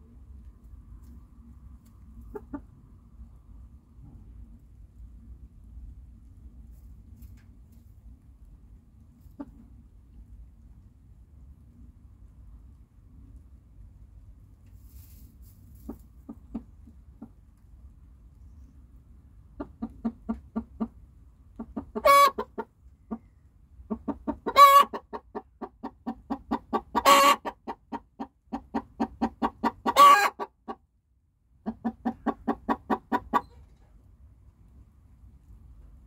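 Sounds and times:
hen clucking: 2.2 - 2.8, 9.2 - 9.7, 15.8 - 17.4, 19.4 - 30.8, 31.6 - 33.6.

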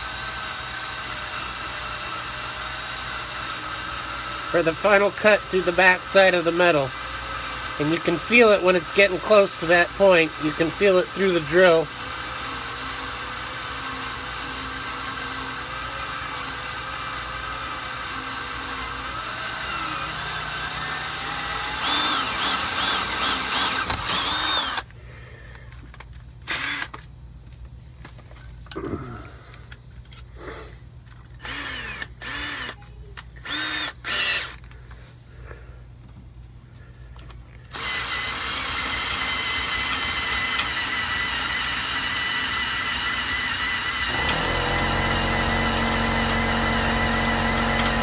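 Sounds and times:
drill boring through metal: 0.0 - 24.9, 26.5 - 27.0, 31.4 - 32.8, 33.4 - 34.6, 37.7 - 48.0.

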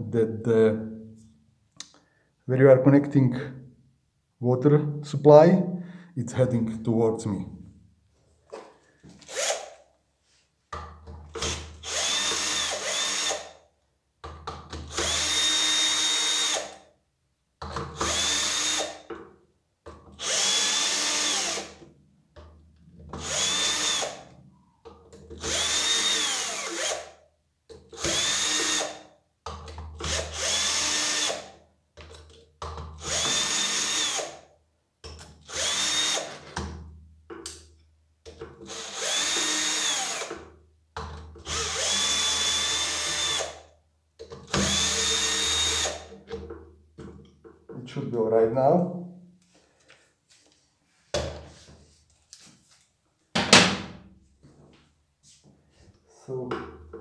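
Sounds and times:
cordless drill motor whine: 11.4 - 13.4, 23.2 - 24.2, 35.5 - 36.3, 38.7 - 40.3, 41.5 - 43.6, 44.6 - 46.0.

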